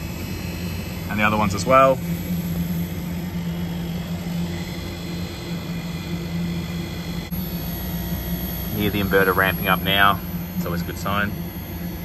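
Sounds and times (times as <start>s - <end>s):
compressor humming: 0.0s - 12.0s.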